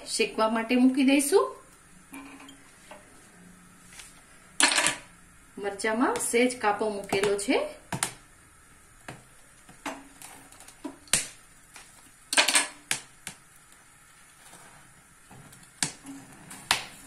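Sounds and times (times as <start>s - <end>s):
chillies crackling over flame: 5.2s - 17.0s.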